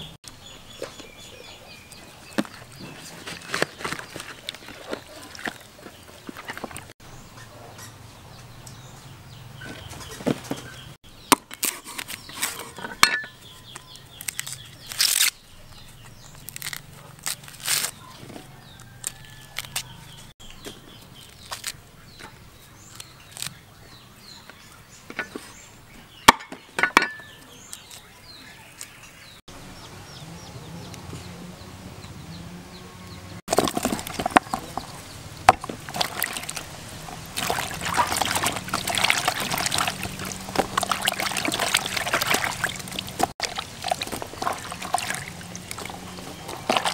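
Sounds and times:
corn husks tearing: 2.6s - 6.9s, 11.3s - 12.8s, 13.7s - 20.0s, 21.2s - 21.8s, 22.9s - 23.6s, 35.6s - 46.9s.

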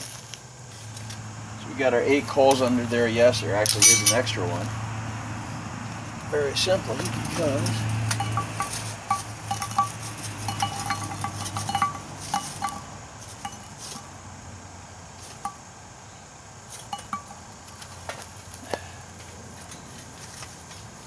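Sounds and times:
charcoal clinking on iron lid: 3.6s - 4.4s, 6.9s - 14.0s, 16.8s - 17.4s.

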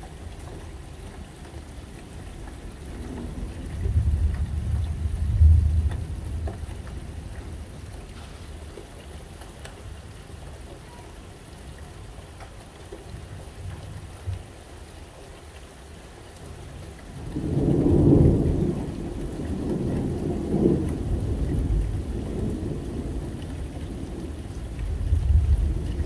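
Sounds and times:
light rain: 0.0s - 26.0s
raindrops ticking: 0.0s - 26.0s
thunder rumbling: 2.8s - 8.4s, 17.2s - 26.0s.

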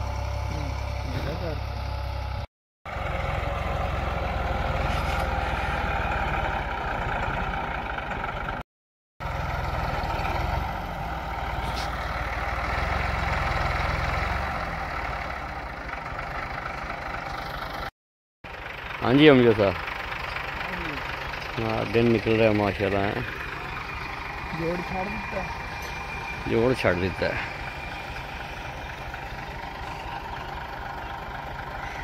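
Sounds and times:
tractor diesel engine under load: 0.0s - 8.6s, 9.2s - 32.0s.

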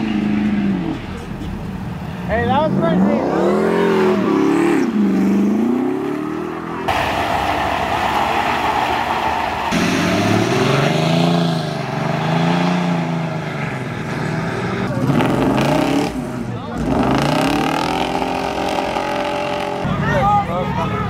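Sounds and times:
truck engines revving: 0.0s - 21.0s
steady rushing noise: 5.7s - 11.7s.

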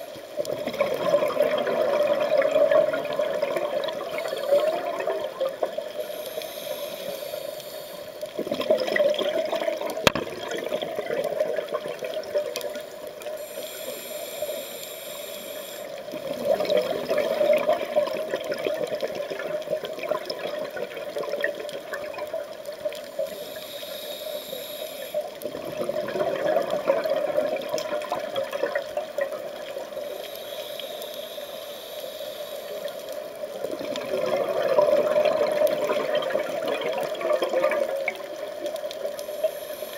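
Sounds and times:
regulator inhale hiss: 3.8s - 5.0s, 5.8s - 8.4s, 12.7s - 16.2s, 23.0s - 25.4s, 29.7s - 33.5s, 38.9s - 39.9s.

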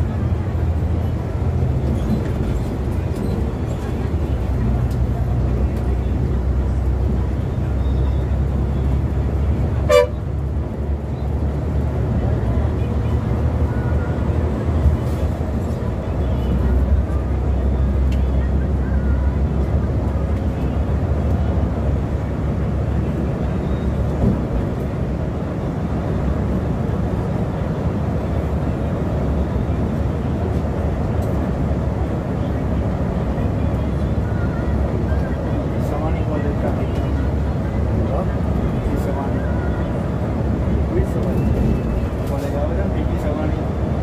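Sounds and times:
diesel engine and road noise droning: 0.0s - 44.0s
short horn blast: 9.8s - 10.2s.

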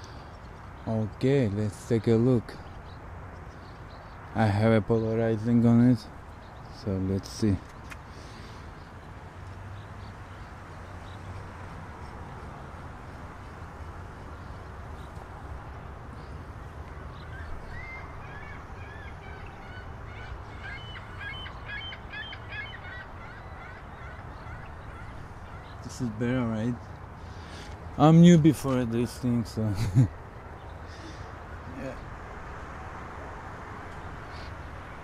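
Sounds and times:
waterfowl honking: 17.2s - 26.2s.

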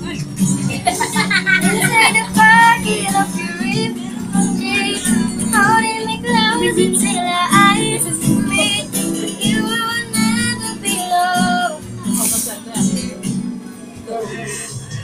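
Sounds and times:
strummed guitar: 0.0s - 15.0s
girl singing: 0.9s - 12.2s.

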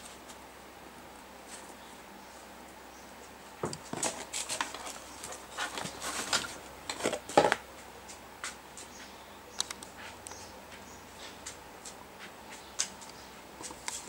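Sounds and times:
objects handled on a bench: 3.2s - 14.0s.

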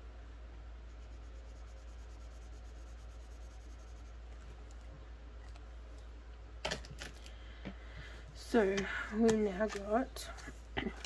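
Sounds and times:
steady low hum: 0.0s - 11.0s
pen scratching on card: 0.9s - 4.2s.

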